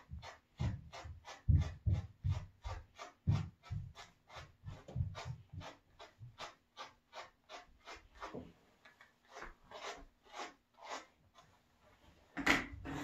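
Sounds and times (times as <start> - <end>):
brush strokes through dog fur: 0.0 - 12.2.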